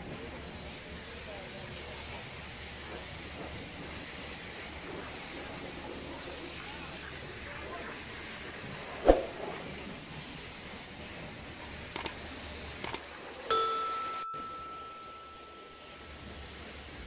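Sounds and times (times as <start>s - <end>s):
quick double clicks: 11.9s - 12.2s
bright bell ding: 13.5s - 16.4s.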